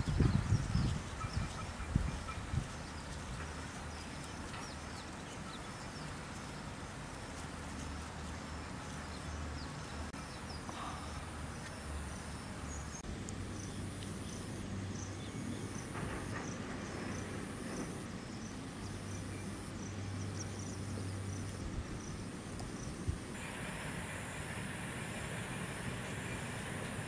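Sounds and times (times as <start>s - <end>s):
bird chirps: 0.0s - 6.6s.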